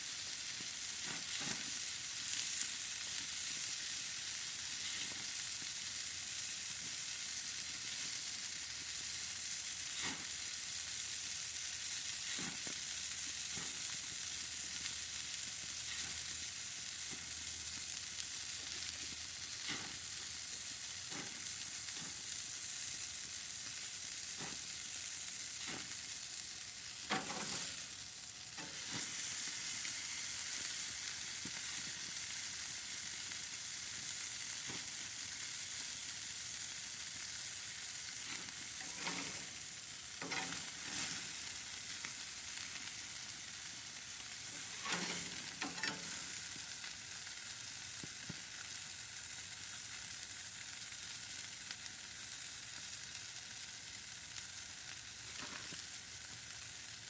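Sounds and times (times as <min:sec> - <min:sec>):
burger patties sizzling on grill: 0:00.0 - 0:57.0
spatula scraping: 0:38.3 - 0:39.5, 0:44.5 - 0:46.1.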